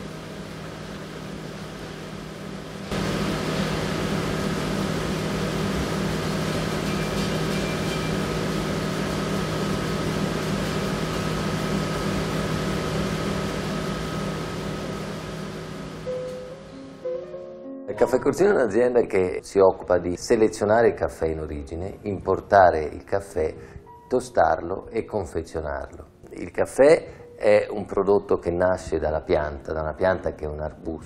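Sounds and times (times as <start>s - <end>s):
machine hum: 0.0s - 17.1s.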